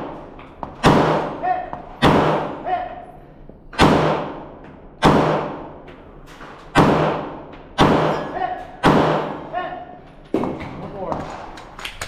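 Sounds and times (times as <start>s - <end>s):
pistol shots echoing: 0.0s - 1.4s, 2.0s - 2.7s, 3.7s - 5.8s, 6.7s - 9.6s.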